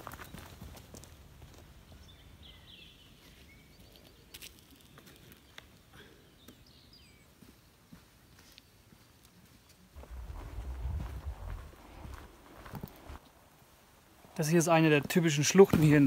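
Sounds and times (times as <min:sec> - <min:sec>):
small birds chirping: 0:01.8 - 0:09.9
footsteps in dry leaves: 0:10.0 - 0:13.2.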